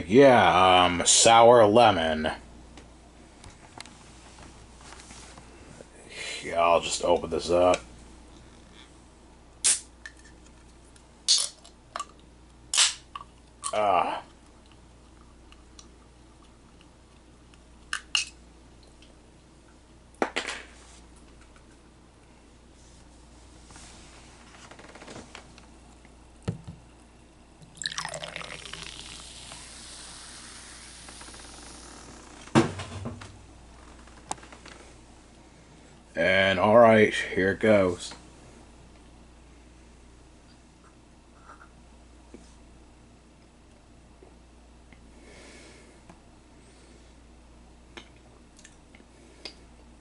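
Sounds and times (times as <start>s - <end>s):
soda pouring and fizzing: 27.6s - 32.2s
person drinking: 27.8s - 30.6s
soft breath: 45.1s - 47.2s.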